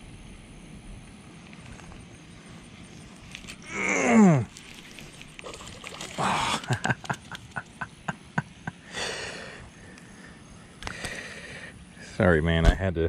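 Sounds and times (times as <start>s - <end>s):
fish splashing: 4.5s - 7.8s.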